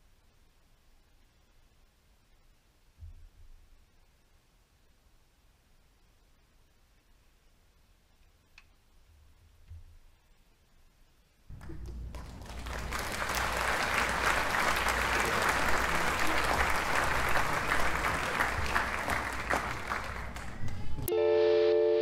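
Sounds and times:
audience applause: 0:11.5 - 0:21.1.

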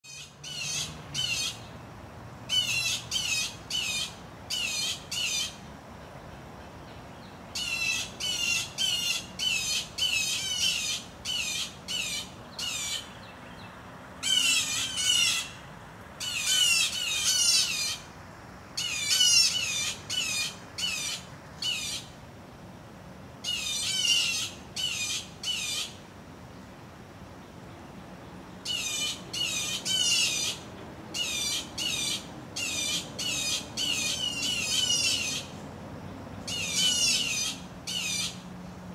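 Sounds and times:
blue jays alarm calls: 0:00.0 - 0:01.7, 0:02.5 - 0:05.6, 0:07.5 - 0:13.3, 0:14.2 - 0:15.6, 0:16.2 - 0:18.1, 0:18.8 - 0:22.2, 0:23.4 - 0:26.0, 0:28.6 - 0:35.6, 0:36.4 - 0:38.5.

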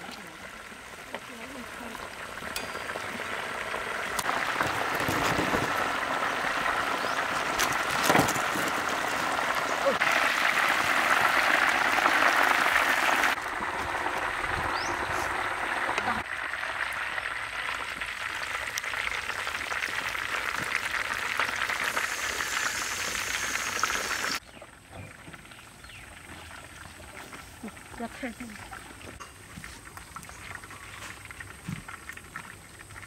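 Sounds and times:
hot oil sizzling in a wok: 0:09.1 - 0:24.4.

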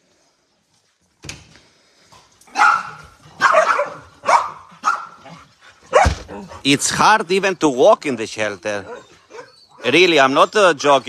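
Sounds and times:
dog barking: 0:02.5 - 0:06.6, 0:08.8 - 0:09.9.

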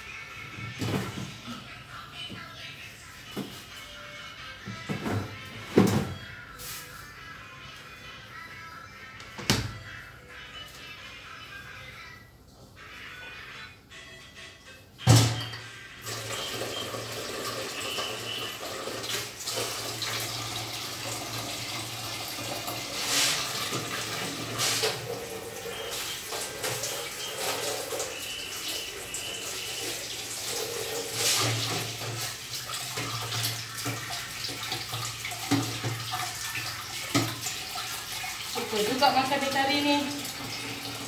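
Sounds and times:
water splashing in plastic basin: 0:16.1 - 0:41.0.

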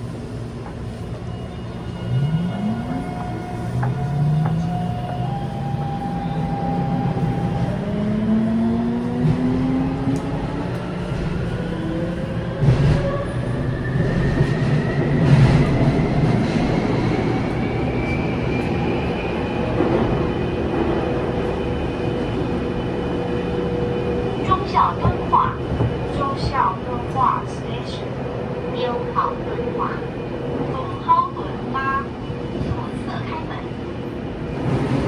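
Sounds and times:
subway traction motors whining: 0:00.0 - 0:35.0
wheels rumbling on rail: 0:00.0 - 0:35.0
train knocks: 0:02.5 - 0:06.0, 0:24.7 - 0:26.7.

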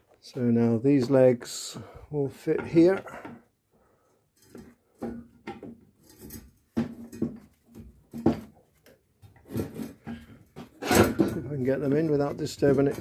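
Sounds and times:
knocks and scrapes on steel: 0:04.4 - 0:08.6, 0:09.2 - 0:13.0.

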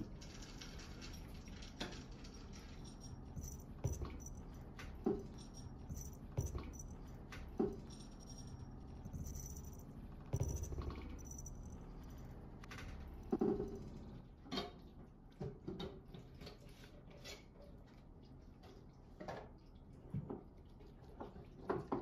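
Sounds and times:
collar charm jingle: 0:00.8 - 0:12.1.

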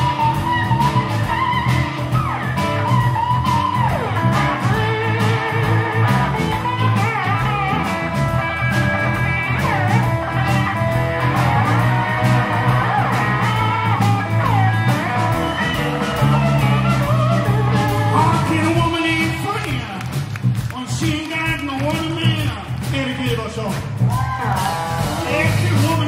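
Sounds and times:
electric guitar lead lines: 0:00.0 - 0:20.3
live blues band playing: 0:00.0 - 0:26.0.

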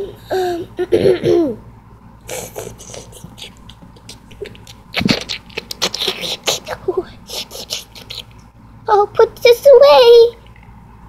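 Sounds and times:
child's wordless vocal sounds: 0:04.5 - 0:08.3.

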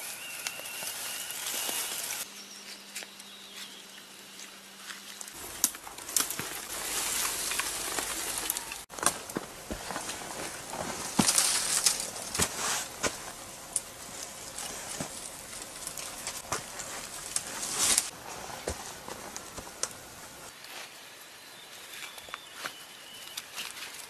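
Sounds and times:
dry leaves rustling: 0:00.0 - 0:24.0
twigs snapping: 0:04.8 - 0:18.1.

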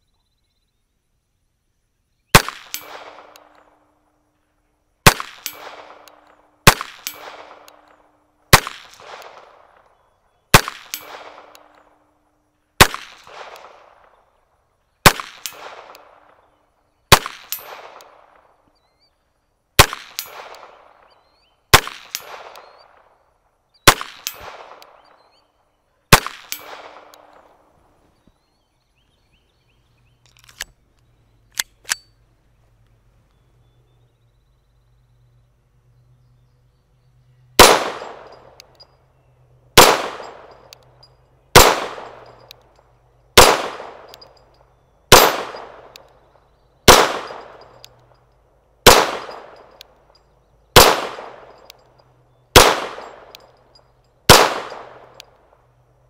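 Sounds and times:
pistol shots with echo: 0:02.3 - 0:04.0, 0:05.0 - 0:12.0, 0:12.8 - 0:14.2, 0:15.0 - 0:16.5, 0:17.1 - 0:18.6, 0:19.8 - 0:23.2, 0:23.8 - 0:25.4, 0:26.1 - 0:27.7, 0:37.6 - 0:38.8, 0:39.8 - 0:40.8, 0:41.5 - 0:42.6, 0:43.4 - 0:48.2, 0:48.8 - 0:55.6.

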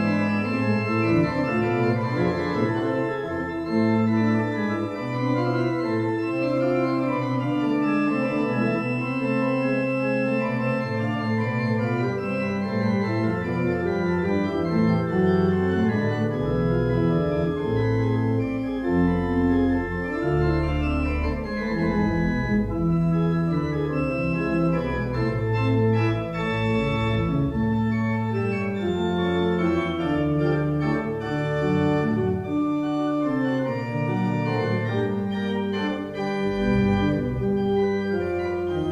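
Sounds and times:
pipe organ chords: 0:00.0 - 0:38.9.

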